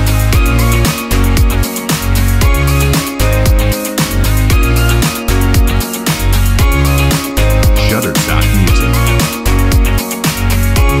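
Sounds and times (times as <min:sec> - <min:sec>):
electronic music with heavy bass: 0:07.4 - 0:09.4.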